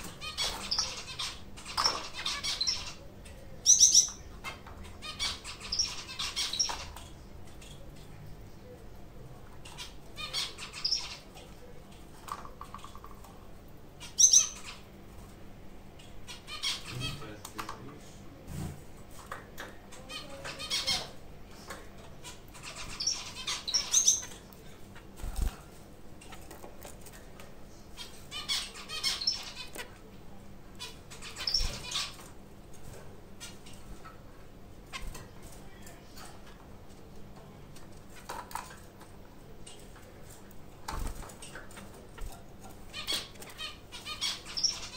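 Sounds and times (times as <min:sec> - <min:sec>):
finches calling: 0:00.0 - 0:07.0, 0:09.7 - 0:11.7, 0:14.0 - 0:14.9, 0:20.0 - 0:21.2, 0:22.2 - 0:25.1, 0:27.9 - 0:29.8, 0:30.7 - 0:32.3, 0:42.9 - 0:44.9.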